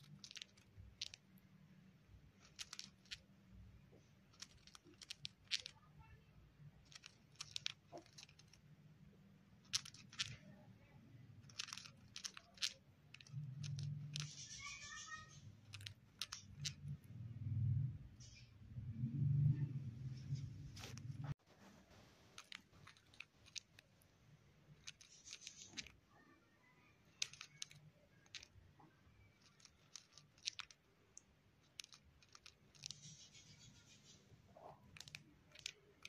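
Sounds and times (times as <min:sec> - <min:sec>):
bird chirp: 0:14.2 - 0:15.8
bird grinding its beak: 0:24.8 - 0:25.9, 0:29.4 - 0:30.8.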